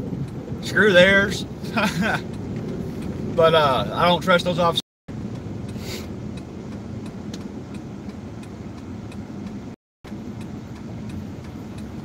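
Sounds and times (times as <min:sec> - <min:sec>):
car engine and road noise: 0:00.0 - 0:12.0
turn signal ticking: 0:00.0 - 0:12.0.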